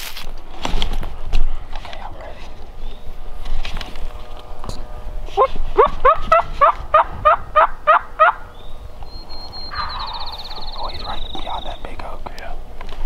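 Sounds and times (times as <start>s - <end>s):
turkey calling: 5.4s - 12.0s.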